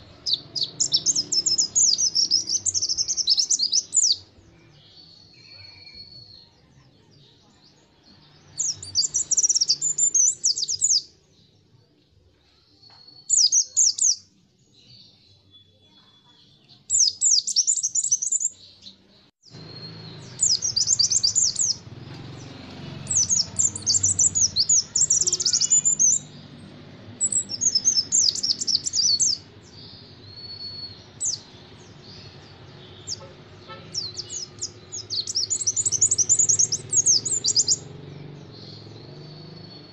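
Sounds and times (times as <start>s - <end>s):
bird chattering song: 0.0s - 11.6s, 13.1s - 39.9s
thin bird whistles: 30.3s - 31.4s.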